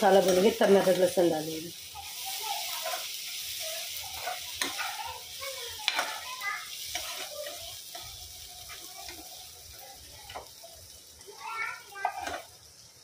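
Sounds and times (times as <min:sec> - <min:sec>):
vegetables sizzling in oil: 0:00.0 - 0:13.0
ladle scraping a pan: 0:02.0 - 0:09.3.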